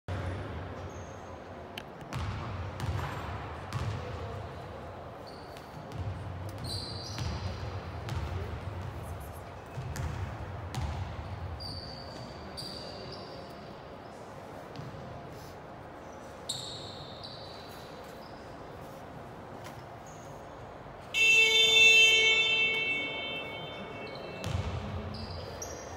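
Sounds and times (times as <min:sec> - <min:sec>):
sneaker squeaks: 0:00.8 - 0:04.0, 0:05.1 - 0:25.9
basketballs bouncing on gym floor: 0:02.1 - 0:04.6, 0:05.6 - 0:12.4, 0:21.2 - 0:25.7.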